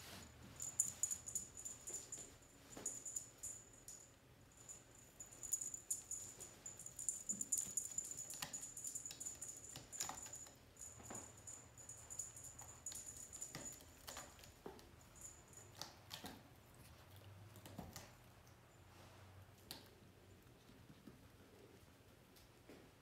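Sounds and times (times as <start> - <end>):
thin high steady tone: 0.1 - 13.8
kitten paws tapping: 5.2 - 16.5.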